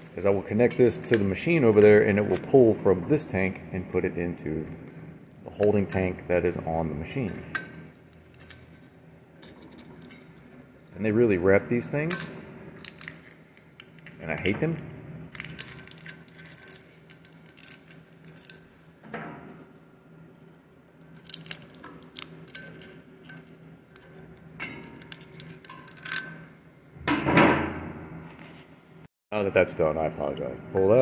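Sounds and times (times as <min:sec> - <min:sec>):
plastic wrap crinkling and tearing: 0:15.3 - 0:18.6, 0:21.1 - 0:22.5
plastic rustling: 0:15.3 - 0:18.7
small clicks and scrapes: 0:15.3 - 0:18.7.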